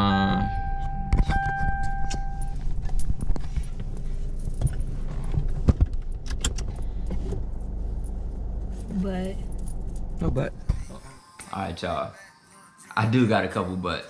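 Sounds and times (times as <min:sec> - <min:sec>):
car electronic warning tone: 0:00.0 - 0:02.7
seat belt buckling clicks: 0:05.8 - 0:06.8.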